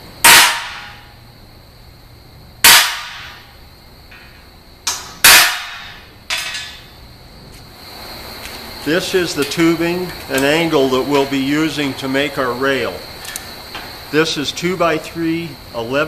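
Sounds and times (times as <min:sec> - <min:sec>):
hammer striking punch on steel: 0:00.2 - 0:01.1, 0:02.6 - 0:03.5, 0:04.9 - 0:06.8.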